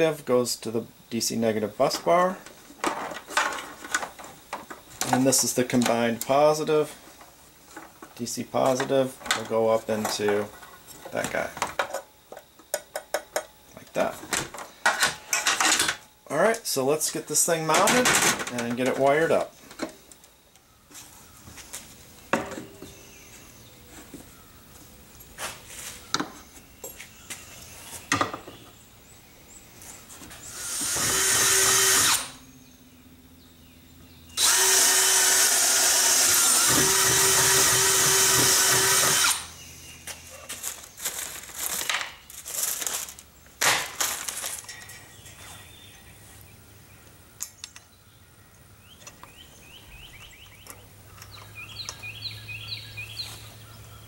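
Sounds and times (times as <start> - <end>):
cordless drill boring into wood: 30.5 - 32.4, 34.4 - 39.5.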